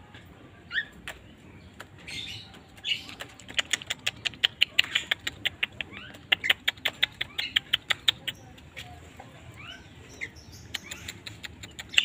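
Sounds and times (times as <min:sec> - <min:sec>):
bulbul calling: 0:09.6 - 0:12.0.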